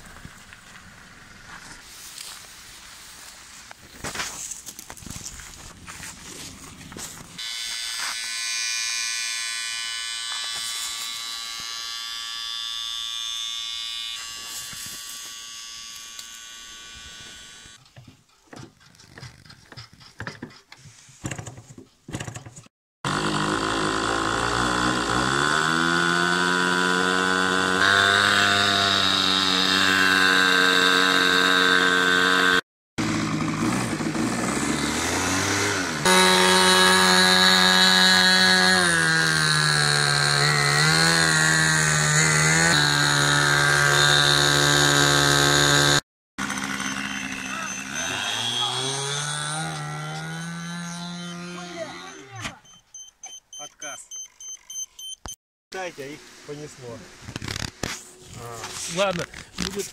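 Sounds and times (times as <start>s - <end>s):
steady buzz: 7.2s - 17.8s, 23.1s - 52.2s
model airplane engine running: 7.4s - 17.8s, 23.1s - 52.0s.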